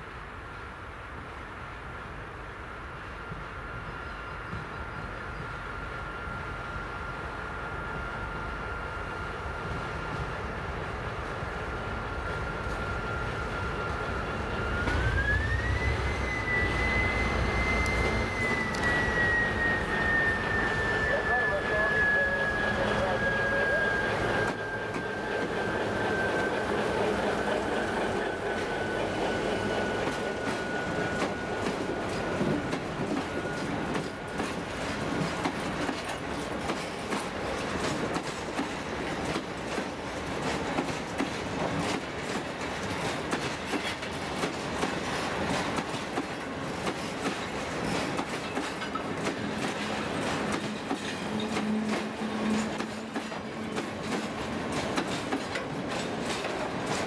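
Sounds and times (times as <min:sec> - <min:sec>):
train rumble: 0:00.0 - 0:57.0
train wheels clicking over rail joints: 0:24.2 - 0:57.0.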